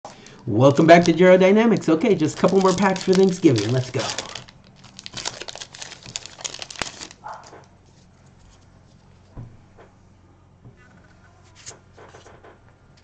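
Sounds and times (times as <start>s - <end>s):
plastic wrapper crinkling: 0.1s - 7.6s.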